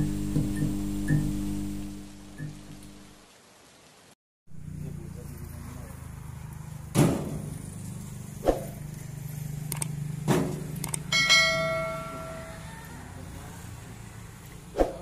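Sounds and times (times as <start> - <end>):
low engine hum: 4.5 - 14.7
metallic clang ringing: 11.1 - 12.6.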